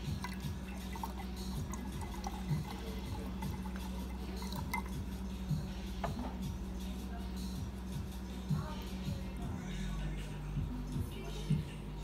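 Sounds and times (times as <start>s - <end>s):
water pouring and splashing: 0.0s - 5.0s
soft background music: 0.0s - 12.0s.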